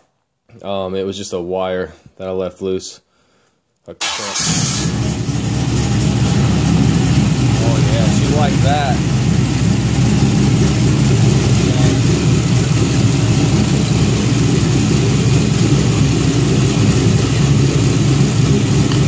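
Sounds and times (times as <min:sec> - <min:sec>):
car engine idling: 0:04.4 - 0:19.0.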